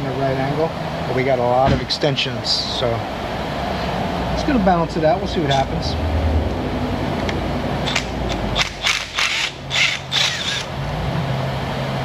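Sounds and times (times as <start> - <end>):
impact wrench hammering: 7.8 - 10.7.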